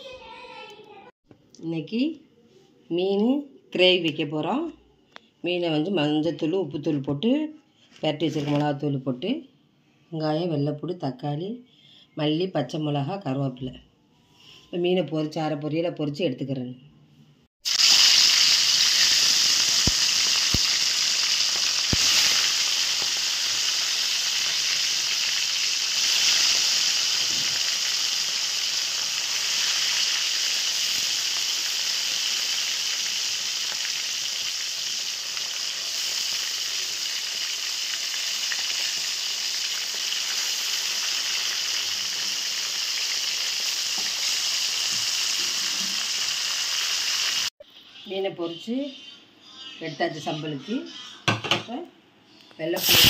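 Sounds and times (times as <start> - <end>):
fish sizzling in oil: 17.6 - 47.5, 52.8 - 53.0
oil popping: 17.7 - 28.0.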